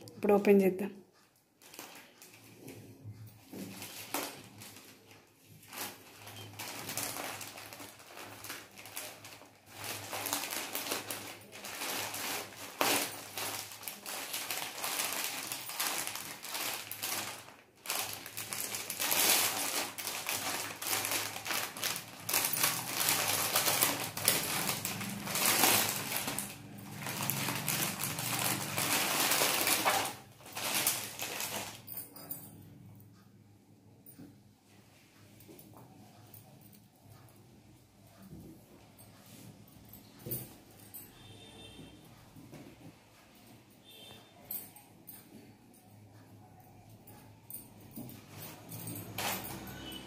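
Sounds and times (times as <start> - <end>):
plastic bags crinkling and rustling: 1.6 - 32.5, 47.5 - 50.0.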